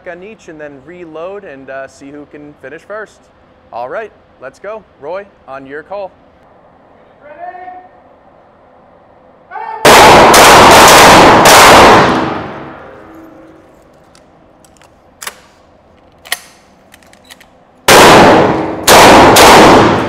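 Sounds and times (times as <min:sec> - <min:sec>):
shotgun blasts echoing indoors: 0:09.8 - 0:13.3, 0:17.8 - 0:20.0
shells being reloaded clicking: 0:13.9 - 0:17.6.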